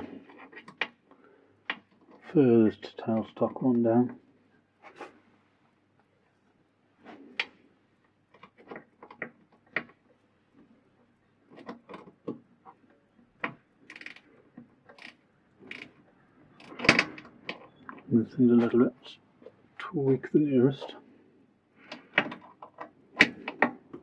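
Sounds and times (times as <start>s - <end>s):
spanner tightening bolt clicks: 13.9s - 14.2s, 14.9s - 15.9s.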